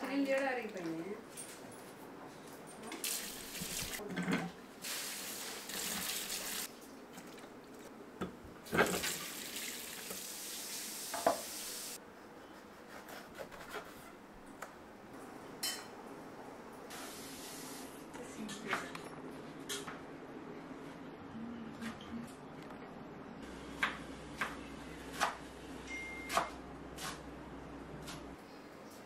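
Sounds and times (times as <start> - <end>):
kitchen tap running: 3.0 - 4.0, 4.8 - 6.7, 8.6 - 12.0.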